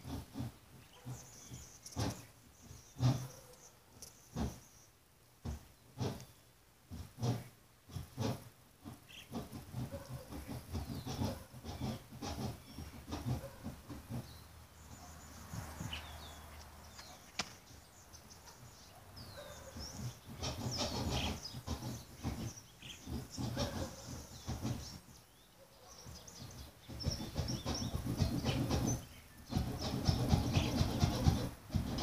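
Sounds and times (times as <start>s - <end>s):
outdoor rustling and scuffing: 0.0s - 32.0s
sharp click: 16.6s - 17.6s.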